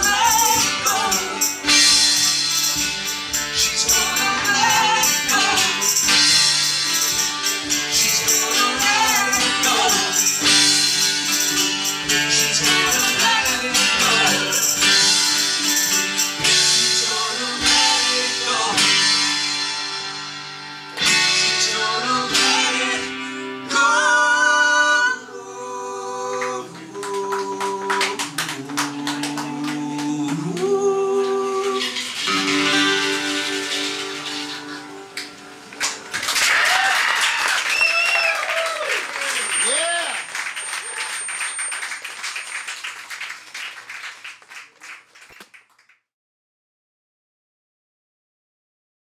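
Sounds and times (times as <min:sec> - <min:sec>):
man and woman singing: 0:00.0 - 0:02.3, 0:03.6 - 0:06.4, 0:07.9 - 0:11.4, 0:12.1 - 0:15.0, 0:16.6 - 0:19.4, 0:21.4 - 0:34.0
acoustic guitar strumming: 0:00.0 - 0:25.2, 0:26.3 - 0:36.1
small audience clapping: 0:26.3 - 0:33.4, 0:34.2 - 0:46.1.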